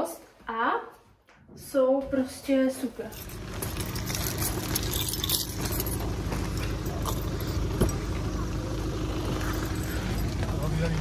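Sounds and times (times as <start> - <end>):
light metallic jingling: 3.0 - 11.0
car engine idling: 3.2 - 11.0.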